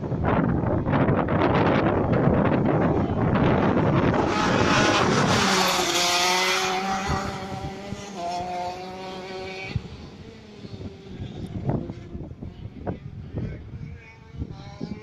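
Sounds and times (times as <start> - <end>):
wind buffeting microphone: 0.0 - 15.0
go-kart engine high revs: 3.6 - 12.6.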